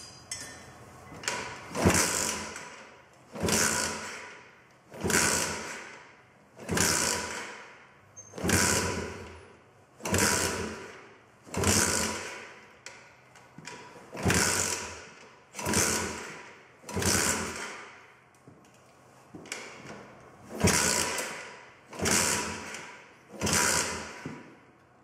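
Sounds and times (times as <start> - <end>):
engine turning over: 20.5 - 24.3.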